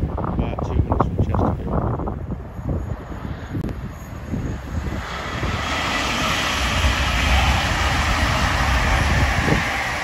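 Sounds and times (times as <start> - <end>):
wheels rushing on rail: 1.6 - 10.0
train passing at speed: 1.8 - 10.0.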